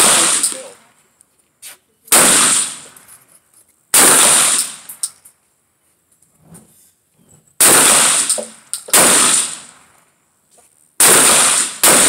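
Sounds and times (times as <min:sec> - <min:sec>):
shotgun shots: 0:00.0 - 0:00.8, 0:02.1 - 0:03.0, 0:03.9 - 0:05.1, 0:07.6 - 0:10.0, 0:11.0 - 0:12.0.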